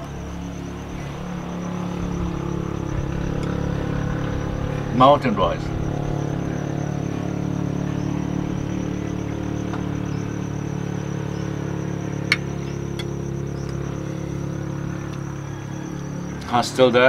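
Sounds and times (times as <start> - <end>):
low motor hum: 0.0 - 17.0.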